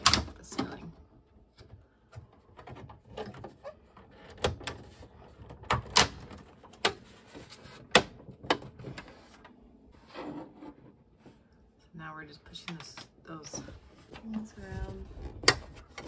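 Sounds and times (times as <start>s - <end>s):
plastic and metal clicks and knocks: 1.5s - 7.1s, 7.9s - 9.1s.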